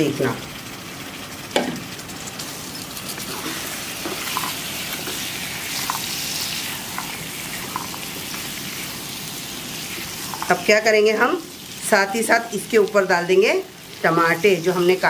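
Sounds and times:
vegetables sizzling in oil: 0.0 - 15.0
spatula scraping pan: 2.4 - 9.0.

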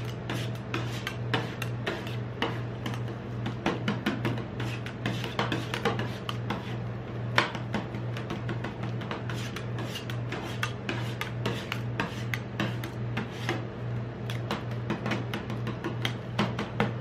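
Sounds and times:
metal spatulas tapping and scraping: 0.0 - 6.8, 7.4 - 13.6, 14.3 - 17.0.

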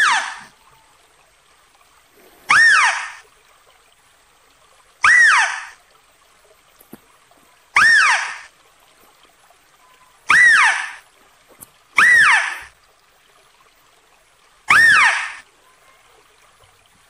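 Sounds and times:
mouse deer squealing: 0.0 - 0.5, 2.5 - 3.2, 5.0 - 5.8, 7.8 - 8.5, 10.3 - 11.0, 12.0 - 12.7, 14.7 - 15.4.

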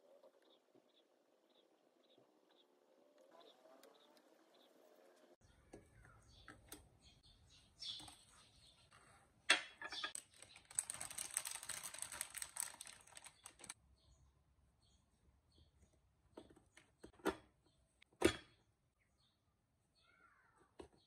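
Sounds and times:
foil wrapper crinkling: 10.1 - 13.8.

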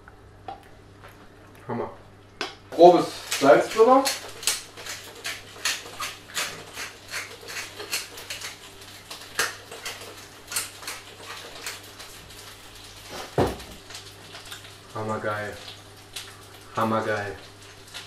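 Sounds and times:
peppers frying: 2.4 - 18.0
salt mill grinding: 3.1 - 11.8.

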